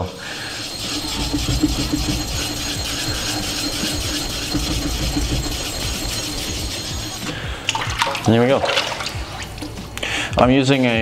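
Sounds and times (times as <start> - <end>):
diamond plate scraping waterstone: 0.0 - 9.1.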